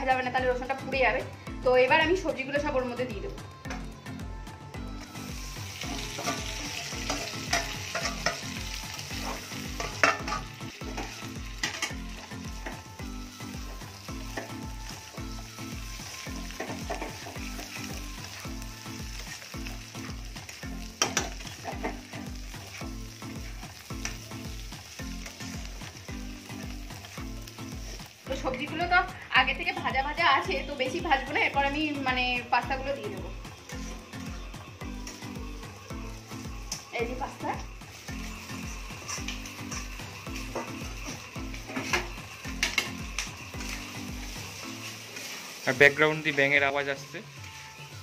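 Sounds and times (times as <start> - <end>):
background music with low beat: 0.0 - 45.0
vegetables sizzling in hot oil: 0.0 - 48.0
metal spatula scraping pan: 38.5 - 45.6.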